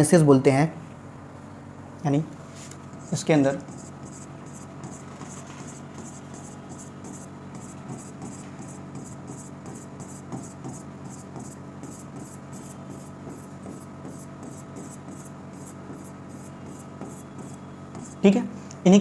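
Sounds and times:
chalk scratching on chalkboard: 0:03.0 - 0:18.3.

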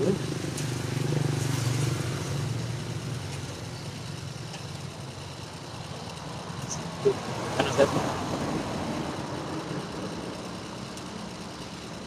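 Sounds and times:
vehicle passing: 0:00.0 - 0:03.3, 0:06.7 - 0:10.4
traffic noise: 0:00.0 - 0:12.0.

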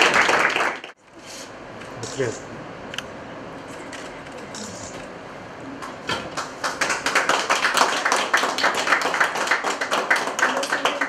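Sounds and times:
people applauding: 0:00.0 - 0:01.0, 0:06.3 - 0:11.0.

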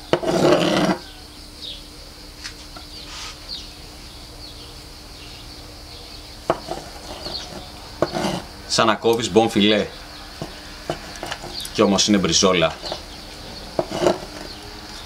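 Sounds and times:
faint bird chirps: 0:01.0 - 0:15.0
knife slicing steak: 0:06.5 - 0:08.5.

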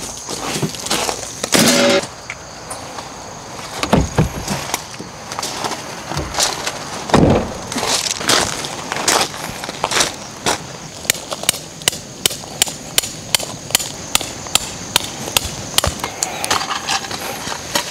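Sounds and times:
knocks and thumps: 0:03.8 - 0:04.7, 0:07.1 - 0:07.6.

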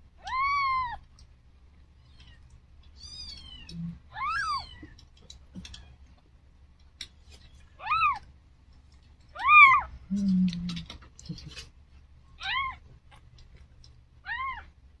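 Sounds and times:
kittens mewing: 0:03.0 - 0:05.0, 0:07.8 - 0:08.2, 0:09.3 - 0:11.8, 0:12.4 - 0:12.8.

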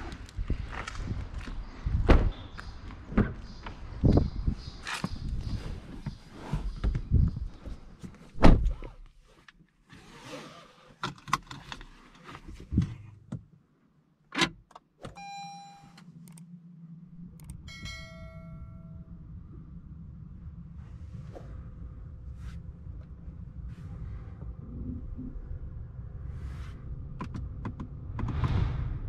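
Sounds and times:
dashboard chimes: 0:15.2 - 0:16.0, 0:17.7 - 0:19.1
steady low hum: 0:15.2 - 0:29.0.

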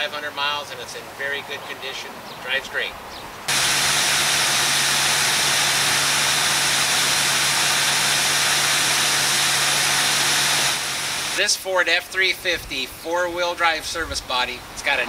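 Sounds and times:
engine idling with low hum: 0:03.5 - 0:11.4
steady hiss: 0:03.5 - 0:11.6.

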